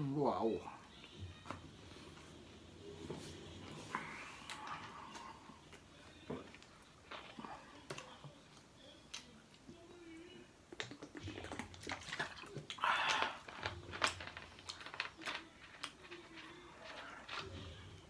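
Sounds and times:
person gulping soda: 10.7 - 13.7.

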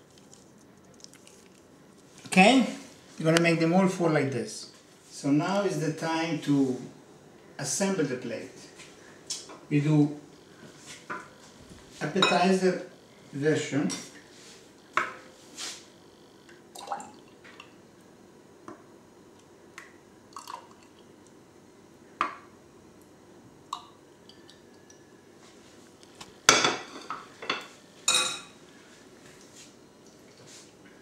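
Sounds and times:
liquid dripping: 16.8 - 17.7.

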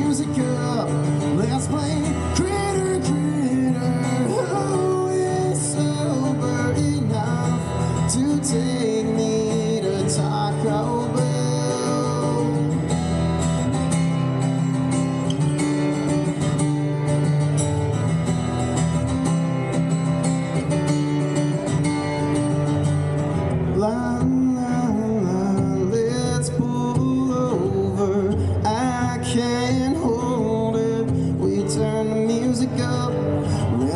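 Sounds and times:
person singing: 0.0 - 12.9
acoustic guitar strumming: 0.0 - 33.9.

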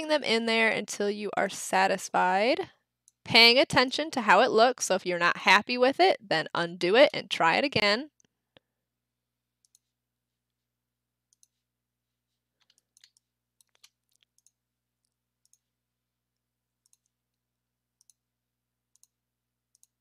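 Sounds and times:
computer mouse clicks: 9.6 - 9.9, 11.3 - 11.6, 12.6 - 15.7, 16.8 - 17.2, 18.0 - 18.2, 18.9 - 20.0.

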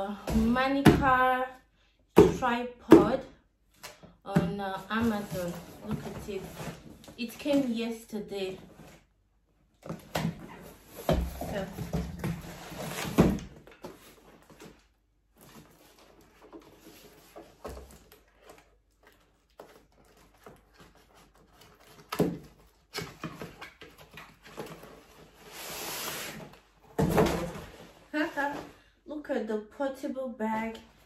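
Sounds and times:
cardboard packaging rustling: 10.0 - 28.6.

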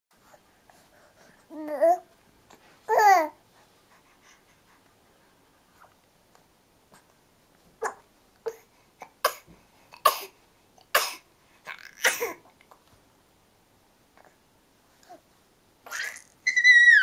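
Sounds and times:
baby squealing: 15.9 - 17.0.

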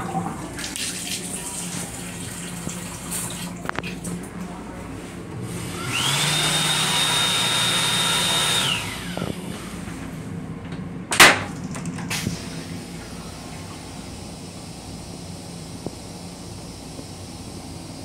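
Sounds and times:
hand dryer whining: 5.4 - 10.2.

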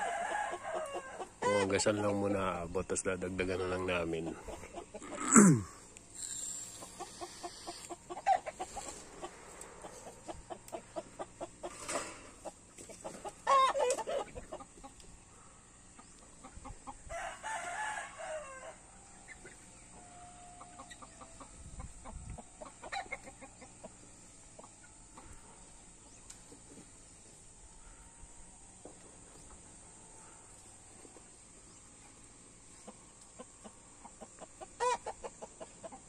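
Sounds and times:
rooster crowing: 0.0 - 1.7, 17.1 - 19.0
chickens clucking: 0.0 - 17.1, 18.9 - 36.0.

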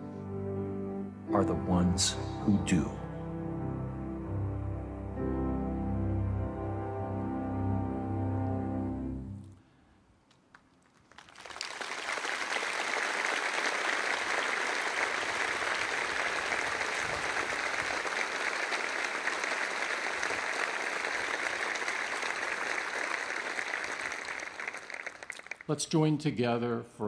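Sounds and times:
large crowd applauding: 10.7 - 25.9.

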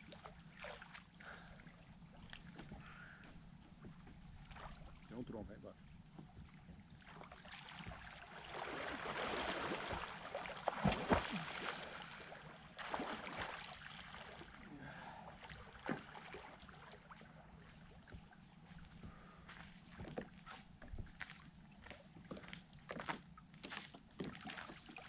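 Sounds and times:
lake water splashing and lapping: 0.0 - 25.0
sharp splashes: 7.3 - 14.6.

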